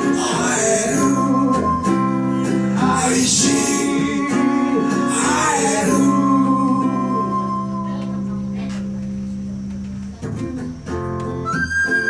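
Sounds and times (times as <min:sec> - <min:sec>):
man singing: 0:00.0 - 0:07.6
strummed acoustic guitars: 0:00.0 - 0:12.0.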